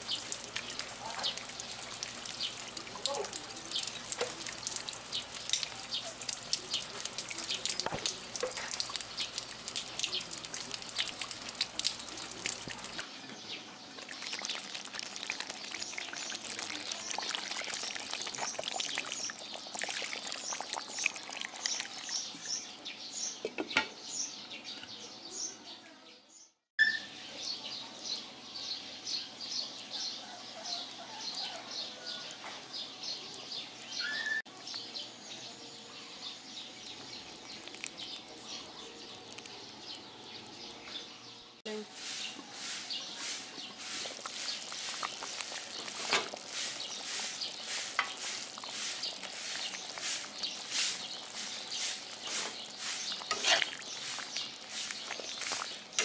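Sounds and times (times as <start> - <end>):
pot simmering: 0.0 - 13.0, 13.8 - 22.8, 35.8 - 56.0
rain pattering on leaves: 0.0 - 13.0, 14.0 - 22.2, 36.8 - 40.6, 41.9 - 56.0
water pouring into wok: 0.0 - 13.0, 14.0 - 22.3, 36.9 - 39.5, 42.0 - 56.0
birds chirping: 0.0 - 56.0.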